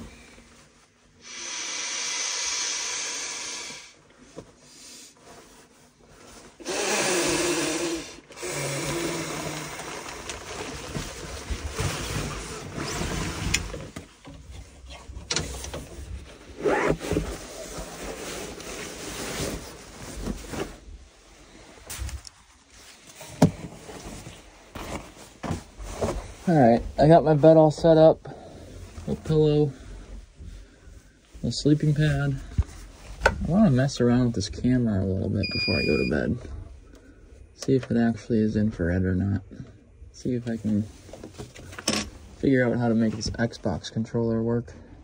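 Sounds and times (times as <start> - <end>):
nylon fabric rustling and swishing: 16.0 - 26.5.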